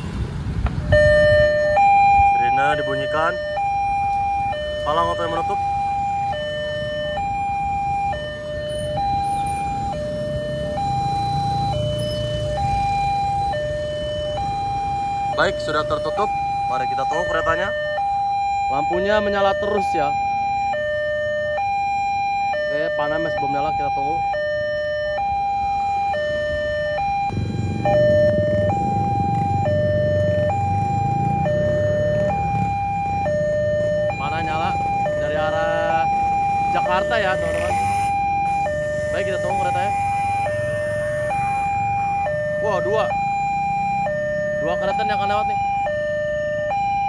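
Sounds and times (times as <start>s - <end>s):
two-tone electronic crossing alarm: 0.9s - 47.0s
low rumbling: 26.4s - 34.1s.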